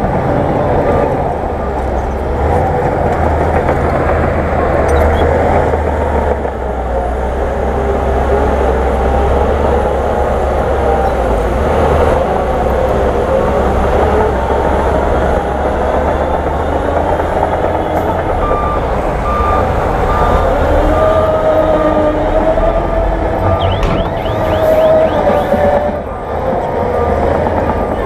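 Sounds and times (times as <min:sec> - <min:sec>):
heavy diesel engines droning: 0:00.0 - 0:28.0
reversing alarm beeping: 0:04.8 - 0:05.6, 0:17.8 - 0:28.0.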